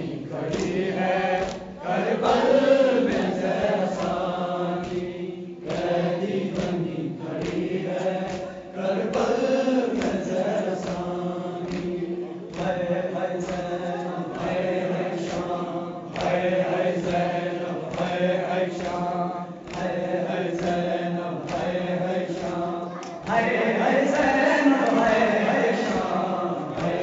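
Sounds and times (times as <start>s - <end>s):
man chanting a lament: 8.0s - 27.0s.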